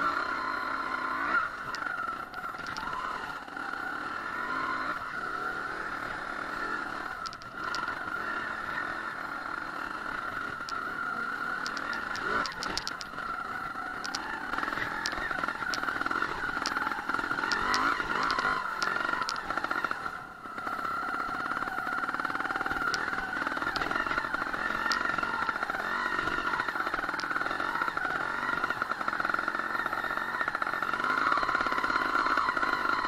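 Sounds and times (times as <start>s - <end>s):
two-stroke motorcycle engine: 0.0s - 33.0s
sharp light clicks: 11.6s - 13.2s, 14.0s - 16.8s, 17.4s - 19.5s, 22.8s - 24.2s.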